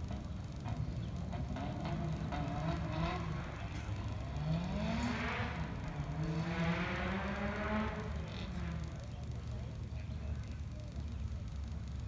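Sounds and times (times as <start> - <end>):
race car engine accelerating: 1.6 - 9.0.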